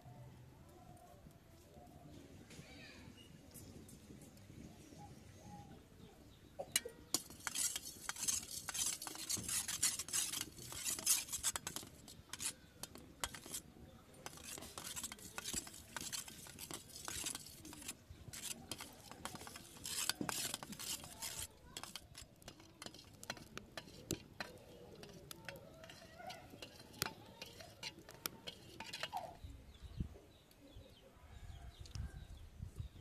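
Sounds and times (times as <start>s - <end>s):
spoon beating eggs in metal bowl: 6.6s - 29.5s.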